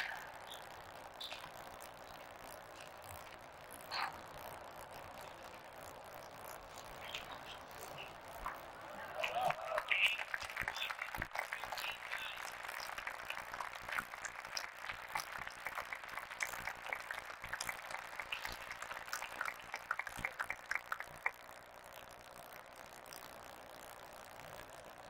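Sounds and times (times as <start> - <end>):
audience applauding: 7.4 - 21.5.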